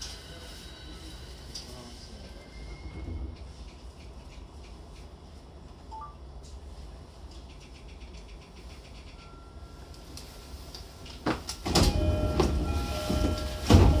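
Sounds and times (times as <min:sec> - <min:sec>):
train low rumble: 0:00.0 - 0:14.0
electronic door chime: 0:11.8 - 0:14.0.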